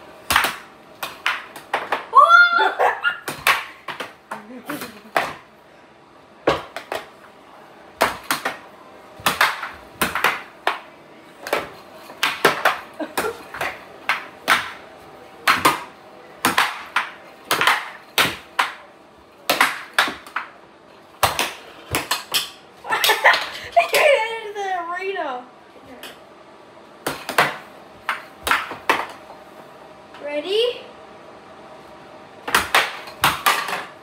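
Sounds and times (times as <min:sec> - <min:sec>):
air hockey puck clacking: 0:00.3 - 0:02.1, 0:03.2 - 0:05.5, 0:06.5 - 0:07.2, 0:08.0 - 0:14.8, 0:15.4 - 0:20.6, 0:21.2 - 0:24.0, 0:27.0 - 0:29.2, 0:32.4 - 0:34.0.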